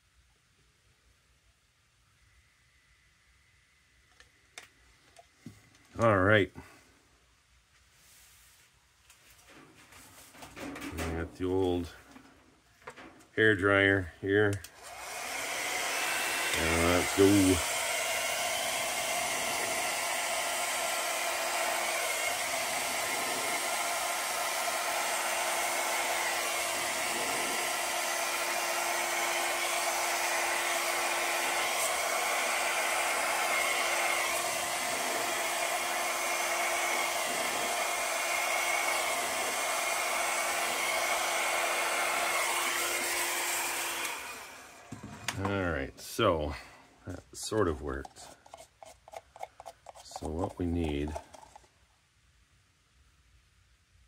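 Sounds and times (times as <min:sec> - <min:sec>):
hair dryer blowing: 0:14.6 - 0:45.6.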